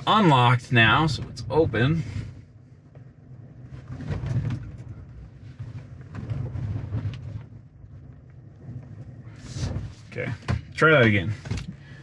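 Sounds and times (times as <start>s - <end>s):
truck engine from inside cab: 0.0s - 2.5s
clicks and knocks underneath: 1.0s - 12.0s.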